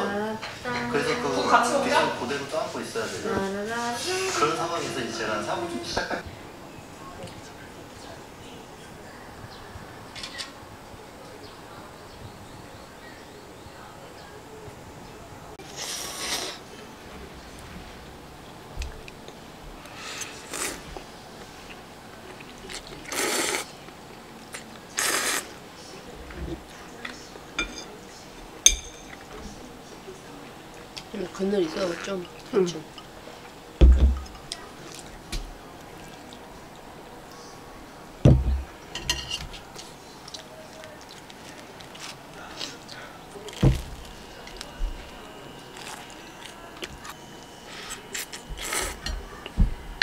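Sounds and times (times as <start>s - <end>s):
noisy slurps of noodles: 23.0s - 23.7s, 25.0s - 25.5s
metal knife clinking: 27.6s - 28.0s, 28.7s - 29.2s
heavy knock on table: 33.8s - 34.3s, 38.3s - 38.7s.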